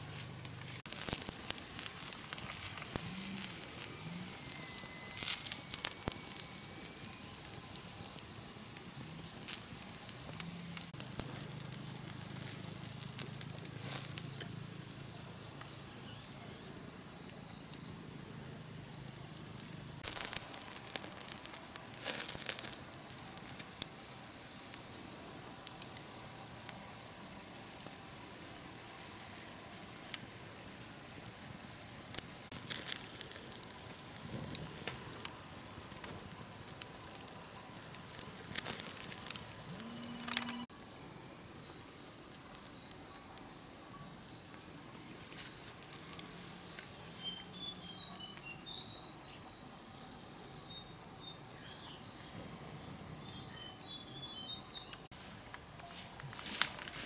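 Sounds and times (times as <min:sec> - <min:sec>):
high-pitched insect drone: 0:00.0 - 0:41.9
fire crackling and popping: 0:00.0 - 0:57.0.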